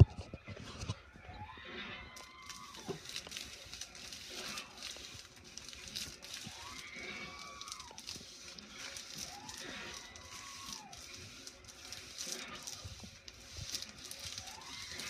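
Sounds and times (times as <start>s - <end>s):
streamers rustling and crinkling: 0.0s - 15.0s.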